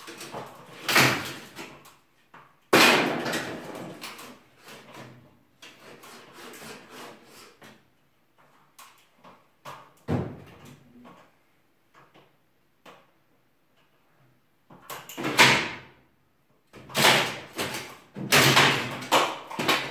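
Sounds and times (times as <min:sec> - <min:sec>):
wooden boards clattering and knocking: 0:00.0 - 0:01.9, 0:02.7 - 0:06.0, 0:16.8 - 0:19.9
wooden boards crashing: 0:00.1 - 0:01.8, 0:02.7 - 0:04.3, 0:16.8 - 0:19.9.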